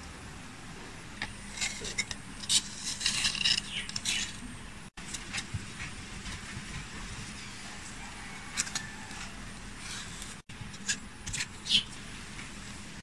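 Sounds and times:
leaves rustling on styrofoam: 0:01.4 - 0:04.4.

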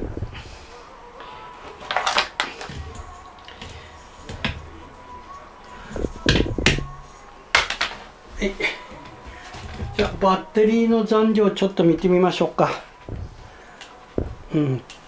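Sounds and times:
handling knocks and clicks at desk: 0:07.6 - 0:08.0.

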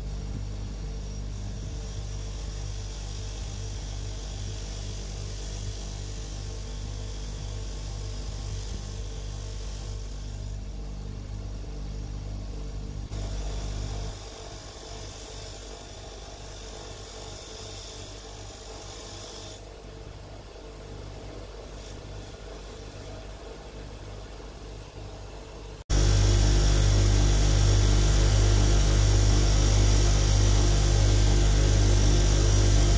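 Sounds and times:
wire wheel hissing on metal: 0:00.8 - 0:10.7, 0:13.1 - 0:19.7, 0:25.9 - 0:32.9
bench grinder motor hum: 0:25.9 - 0:32.9.

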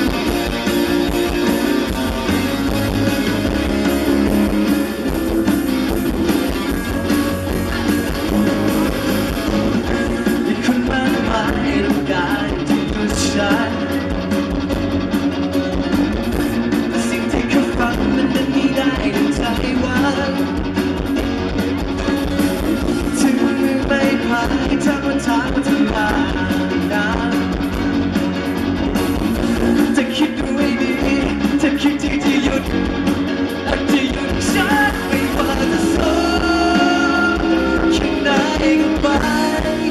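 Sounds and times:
drum kit: 0:00.0 - 0:39.9
electric guitar: 0:00.0 - 0:39.9
man singing into microphone: 0:10.0 - 0:14.1, 0:16.9 - 0:20.6, 0:23.0 - 0:27.6, 0:29.8 - 0:32.8, 0:33.6 - 0:39.9.

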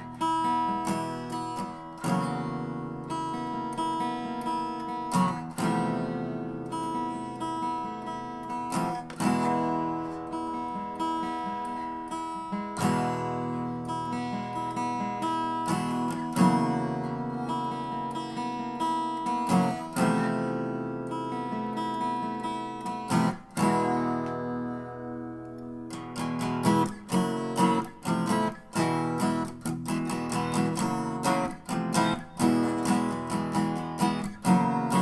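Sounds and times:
acoustic guitar strumming: 0:00.0 - 0:35.0.

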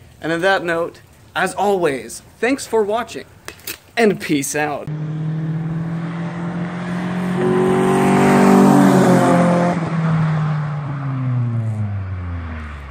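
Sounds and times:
car driving past: 0:04.9 - 0:12.9.

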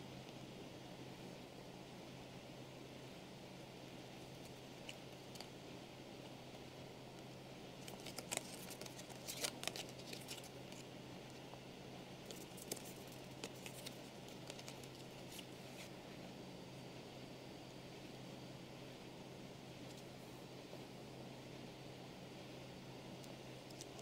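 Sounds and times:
cards clicking and scraping: 0:07.8 - 0:11.4, 0:12.2 - 0:15.9, 0:23.7 - 0:24.0.

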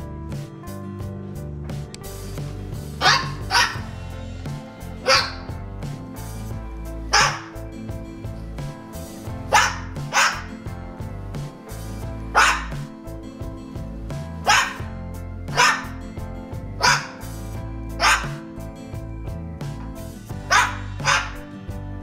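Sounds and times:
music with steady beat: 0:00.0 - 0:22.0
cockatoo barking: 0:02.9 - 0:04.1, 0:04.8 - 0:05.6, 0:06.9 - 0:07.7, 0:09.3 - 0:10.7, 0:11.8 - 0:13.0, 0:14.3 - 0:14.9, 0:15.5 - 0:16.1, 0:16.7 - 0:18.7, 0:20.4 - 0:21.5.

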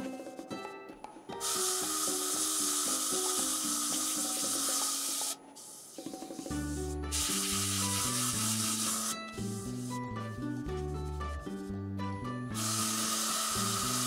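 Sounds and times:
background music: 0:00.0 - 0:14.0
sandpaper hissing on spinning wood: 0:07.1 - 0:10.0, 0:12.6 - 0:14.0.

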